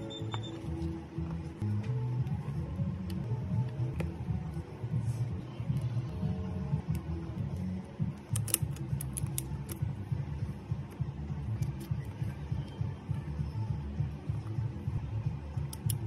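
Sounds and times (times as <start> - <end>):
steady low hum: 0.0 - 16.0
plastic pry tool clicks: 8.3 - 9.8.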